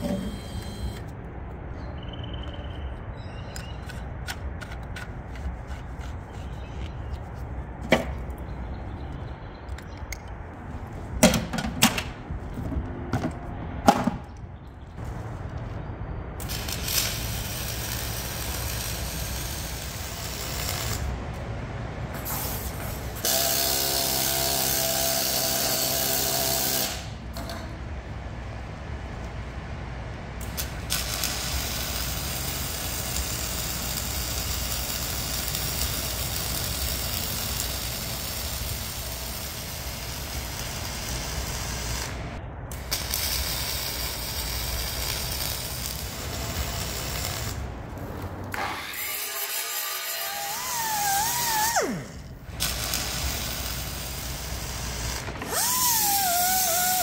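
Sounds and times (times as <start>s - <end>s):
loud pitched hum: 0.0s - 4.0s
arc welding crackle and hiss: 16.3s - 21.5s, 22.1s - 27.2s, 30.4s - 57.0s.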